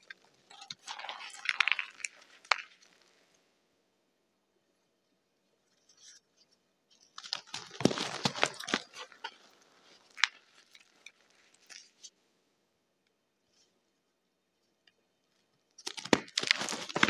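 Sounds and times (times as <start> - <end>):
chalk crunching and cracking: 0.0 - 3.3, 7.0 - 12.1, 15.8 - 17.0.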